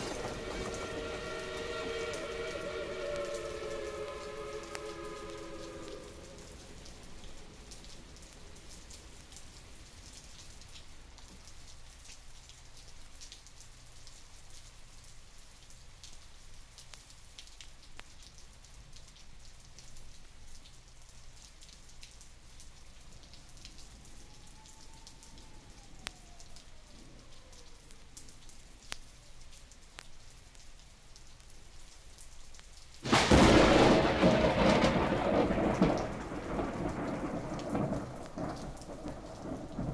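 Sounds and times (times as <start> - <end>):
thunder clap: 0.0 - 8.1, 33.0 - 39.9
steady rain: 0.0 - 39.9.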